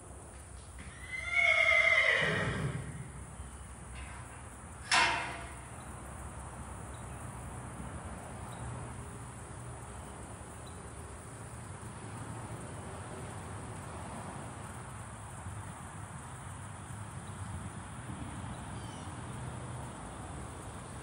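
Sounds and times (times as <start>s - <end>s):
metal gate clang: 3.9s - 5.9s.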